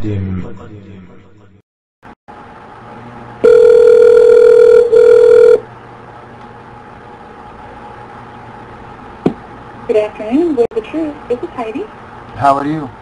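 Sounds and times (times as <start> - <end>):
telephone ringback tone: 3.4 - 5.6.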